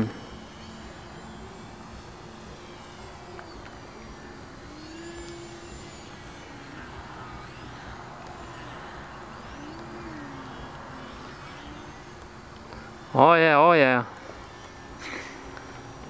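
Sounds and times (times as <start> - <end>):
model plane motor whining: 0.0 - 16.0.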